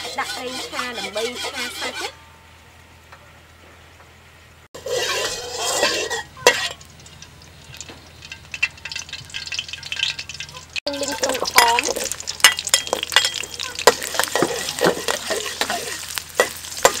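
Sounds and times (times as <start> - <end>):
metal spatula scraping a wok: 0.0 - 2.2, 4.8 - 10.2, 11.5 - 17.0
metal clinking on pan: 4.8 - 17.0
oil crackling in wok: 4.8 - 17.0.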